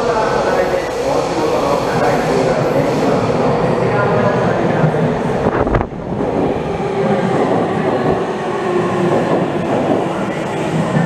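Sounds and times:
rumble of train wheels on rail: 0:00.0 - 0:11.0.

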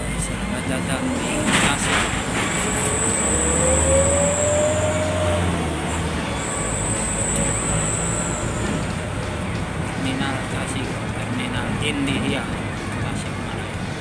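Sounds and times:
rising whine: 0:00.0 - 0:11.5
bus engine hum: 0:00.0 - 0:14.0
thin high whistle: 0:02.6 - 0:09.3.

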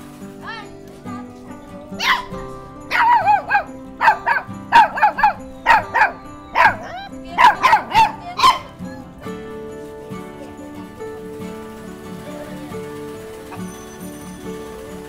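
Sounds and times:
background music: 0:00.0 - 0:15.0
small dog barking: 0:01.9 - 0:09.3.

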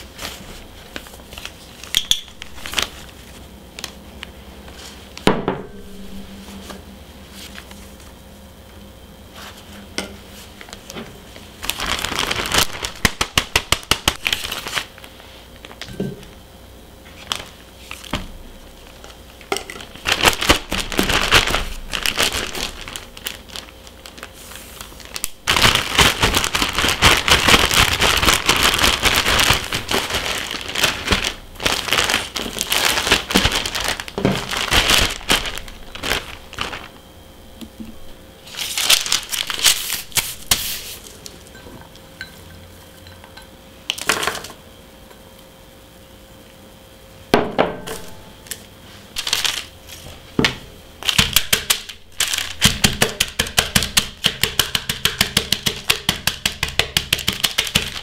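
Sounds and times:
plastic bag crinkling: 0:00.0 - 0:06.5, 0:10.6 - 0:15.9, 0:17.0 - 0:18.1, 0:18.7 - 0:37.1, 0:38.4 - 0:42.0, 0:47.9 - 0:50.2, 0:51.0 - 0:54.2, 0:57.3 - 0:58.0.

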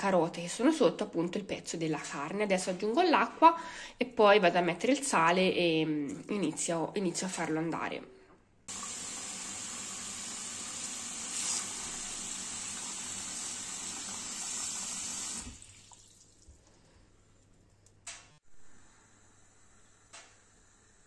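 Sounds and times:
tap water running into a pot: 0:08.7 - 0:16.6.

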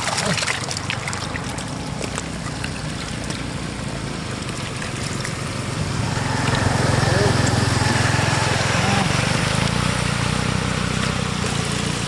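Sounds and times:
muddy water trickling and splashing: 0:00.0 - 0:12.0.

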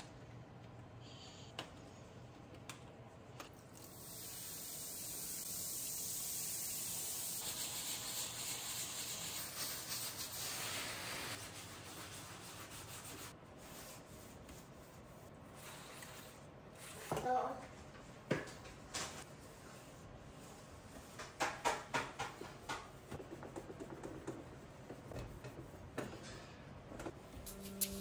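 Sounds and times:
rasping hiss of scrubbing cooktop: 0:03.8 - 0:17.2.

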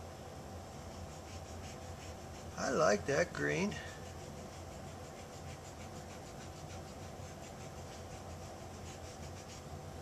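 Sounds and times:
steady low hum: 0:00.0 - 0:10.0
paint applicator rubbing strokes: 0:00.7 - 0:03.0, 0:03.6 - 0:09.7.

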